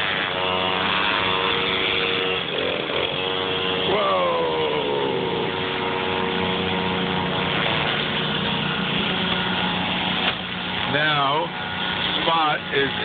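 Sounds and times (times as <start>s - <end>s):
small gas engine running: 0.0s - 13.0s.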